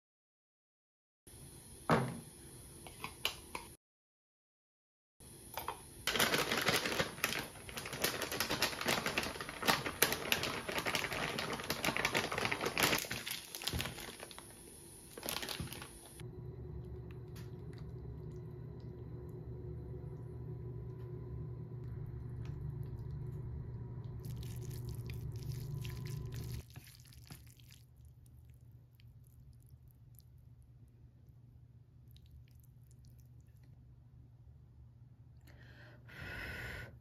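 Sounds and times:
steady low hum: 0:16.0 - 0:26.6.

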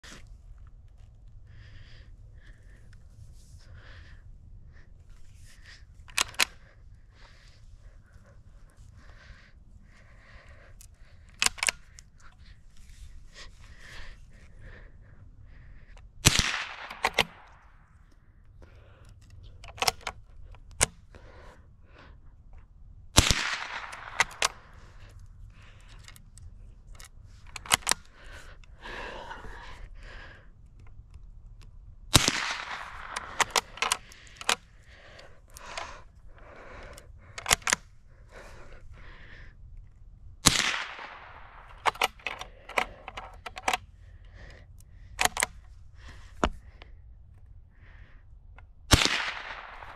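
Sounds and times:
rifle bolt clicking: 0:05.1 - 0:07.4, 0:09.9 - 0:14.2, 0:15.9 - 0:21.2, 0:23.2 - 0:29.9, 0:30.7 - 0:38.8, 0:39.8 - 0:47.4, 0:48.6 - 0:49.9
rifle shots with echo: 0:16.2 - 0:17.5, 0:23.2 - 0:24.7, 0:32.1 - 0:34.0, 0:40.4 - 0:41.7, 0:48.9 - 0:49.9.

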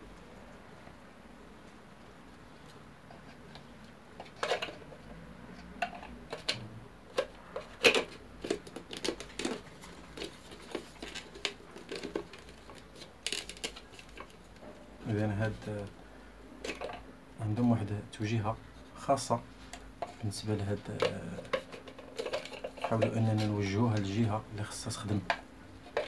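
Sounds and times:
plastic parts knocking and clicking: 0:04.2 - 0:05.0, 0:05.6 - 0:14.4, 0:16.6 - 0:17.0, 0:19.7 - 0:24.1, 0:25.0 - 0:26.0.

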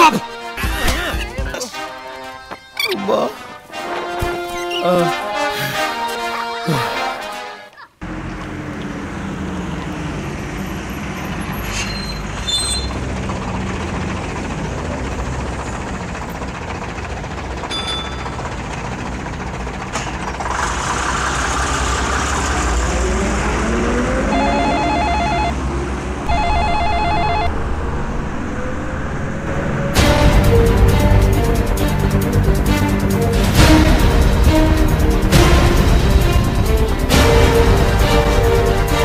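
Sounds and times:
traffic noise: 0:07.7 - 0:39.0
phone ringtone beeping: 0:24.3 - 0:25.6, 0:26.3 - 0:27.6.

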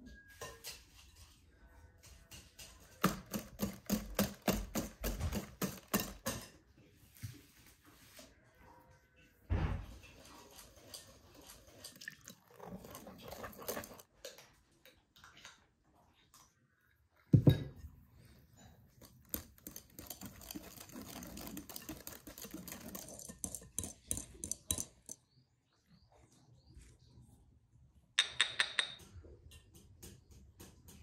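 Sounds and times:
whisk scraping against glass bowl: 0:10.3 - 0:14.1, 0:19.0 - 0:25.2.

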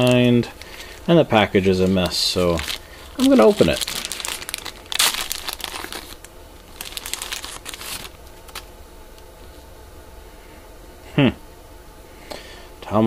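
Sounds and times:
wrapper crinkling and tearing: 0:00.0 - 0:08.7.

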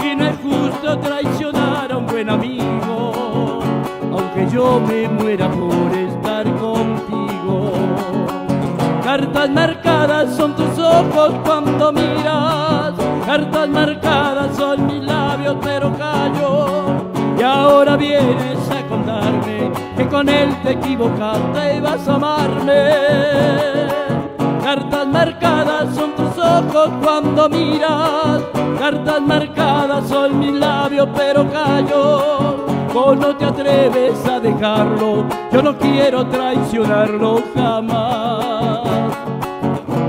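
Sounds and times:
acoustic guitars playing: 0:00.0 - 0:40.0
man singing: 0:00.0 - 0:40.0.

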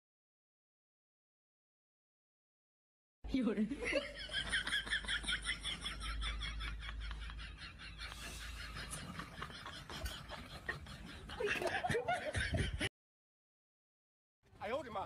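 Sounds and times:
person laughing hard: 0:03.8 - 0:12.9.

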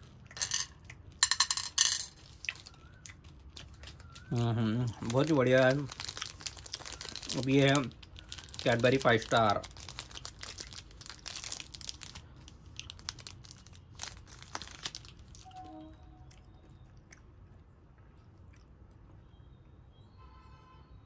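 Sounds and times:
plastic wrapper crinkling: 0:02.1 - 0:15.5.

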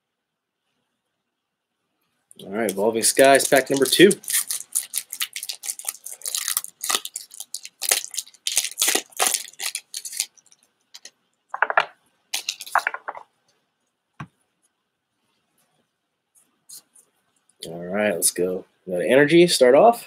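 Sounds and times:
foil wrapper crinkling and tearing: 0:02.6 - 0:11.1, 0:12.3 - 0:13.0
cards scraping rustles: 0:12.4 - 0:13.2.

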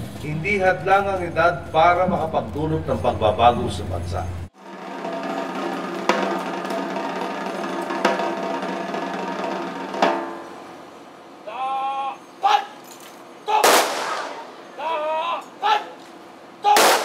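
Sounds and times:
snare drum roll: 0:04.6 - 0:10.4
person shouting command: 0:11.4 - 0:12.8, 0:13.4 - 0:13.8, 0:14.8 - 0:16.0, 0:16.6 - 0:17.0
rifle volley: 0:13.5 - 0:14.6, 0:16.7 - 0:17.0.

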